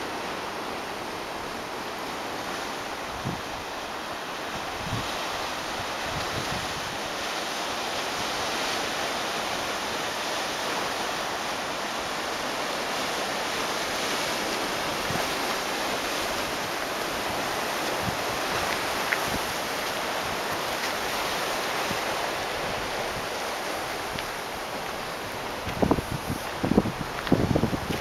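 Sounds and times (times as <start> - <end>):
ocean surf washing on rocks: 0.0 - 28.0
wind bumps on microphone: 4.8 - 5.2, 6.1 - 7.0, 25.5 - 28.0.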